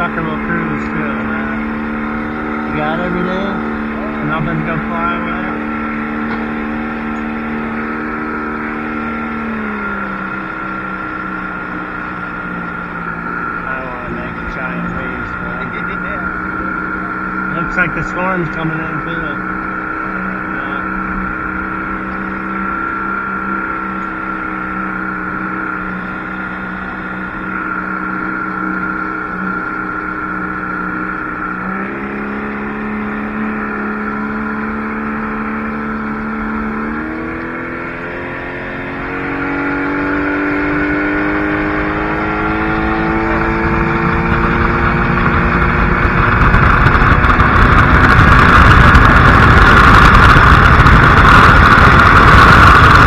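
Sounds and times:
motorboat engine: 0.0s - 53.0s.

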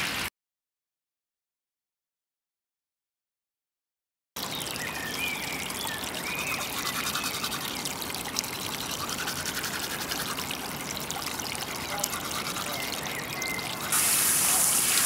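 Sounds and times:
water trickling: 4.4s - 15.0s
toothbrush scrubbing teeth: 6.6s - 10.7s, 11.6s - 14.1s.

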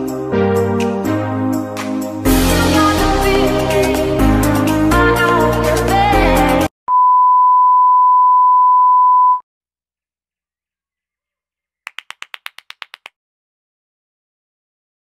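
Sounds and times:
short clicks: 11.9s - 13.1s.

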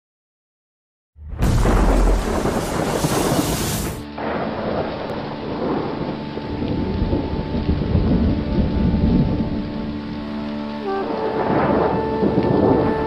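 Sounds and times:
loud hissing crash: 1.2s - 4.2s
rumbling thunder: 1.2s - 9.8s, 11.4s - 13.0s
heavy rain: 1.3s - 13.0s.

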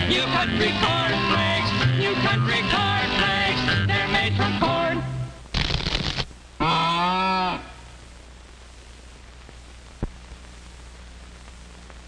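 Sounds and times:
old film soundtrack hum and hiss: 0.0s - 12.0s
cartoon low cry: 6.6s - 7.8s.

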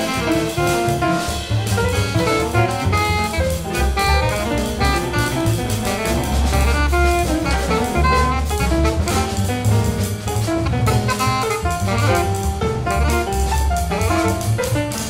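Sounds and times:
bass: 0.0s - 15.0s
drum kit with cymbals: 0.0s - 15.0s
piano: 0.0s - 15.0s
alto saxophone quick notes: 2.1s - 9.4s, 10.5s - 14.6s.

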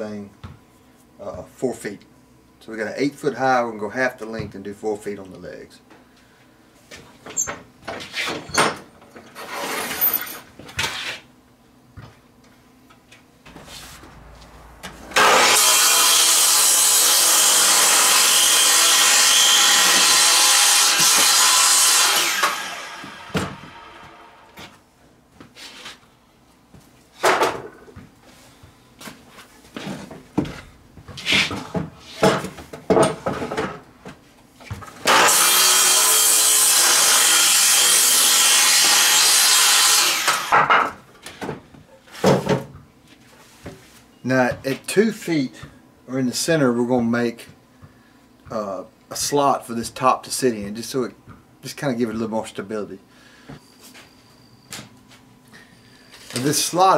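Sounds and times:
miter saw cutting wood: 13.5s - 24.5s, 35.0s - 40.8s.

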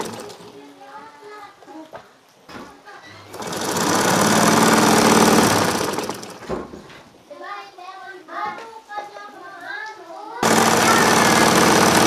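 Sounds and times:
sewing machine stitching: 0.0s - 0.6s, 3.2s - 6.6s, 10.4s - 12.0s.

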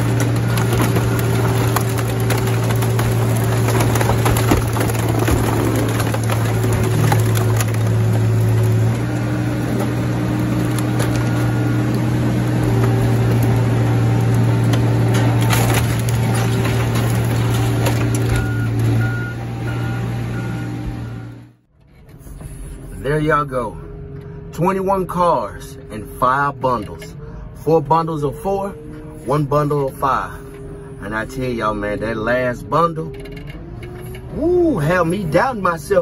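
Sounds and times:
metal cracks and creaks: 0.0s - 19.0s, 33.0s - 36.0s
car crusher machine hum: 0.0s - 22.9s
reversing beeper: 18.2s - 21.6s.

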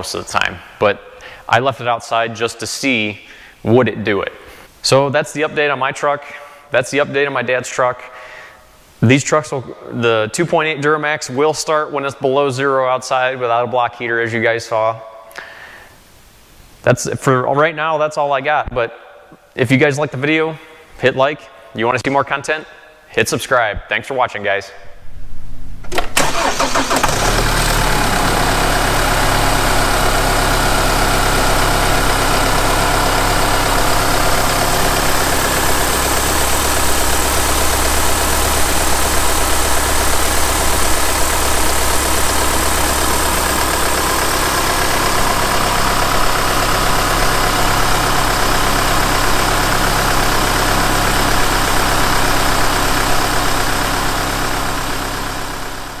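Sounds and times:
diesel engine idling: 26.2s - 56.0s.

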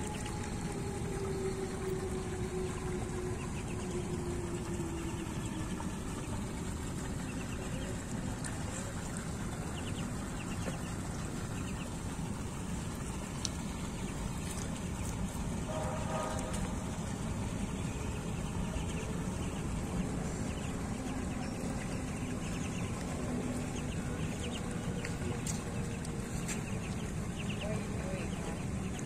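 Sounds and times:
ducklings peeping: 0.0s - 29.0s
low steady tone: 0.0s - 29.0s
steady background noise: 0.0s - 29.0s.

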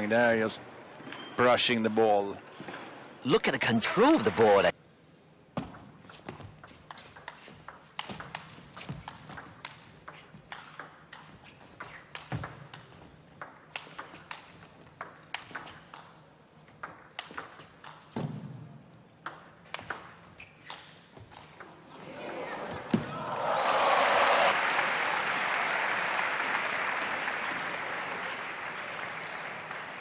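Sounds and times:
table tennis ball clicking: 6.9s - 16.2s.

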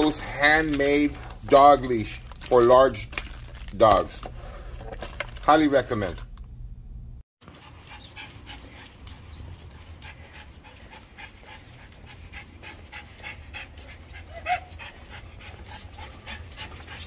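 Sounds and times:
dog panting: 7.4s - 17.0s.

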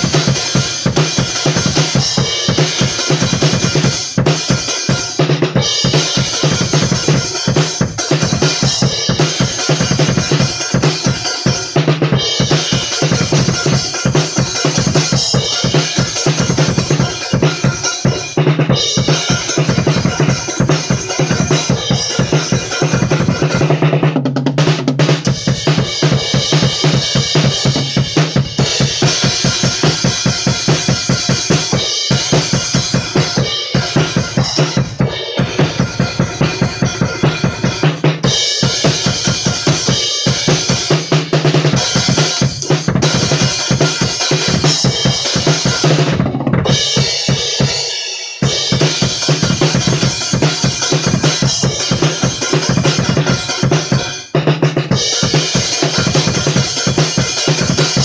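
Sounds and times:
snare drum: 0.0s - 58.0s
bass drum pounding: 11.8s - 47.8s.

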